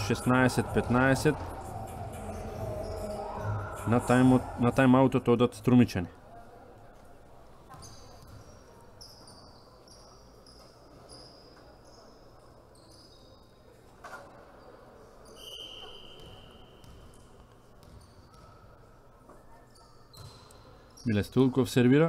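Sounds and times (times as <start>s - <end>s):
sports hall ambience: 0.0s - 22.0s
sneakers squeaking on court: 7.6s - 19.0s, 19.6s - 21.3s
ball bounce: 16.2s - 17.2s, 17.8s - 18.6s.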